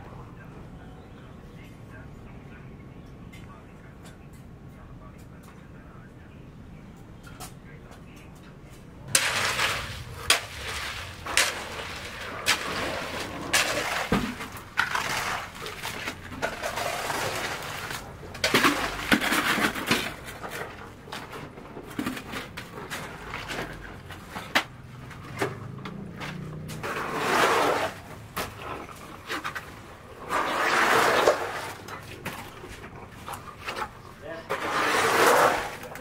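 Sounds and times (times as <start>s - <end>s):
tools scraping wet concrete: 9.1s - 36.0s.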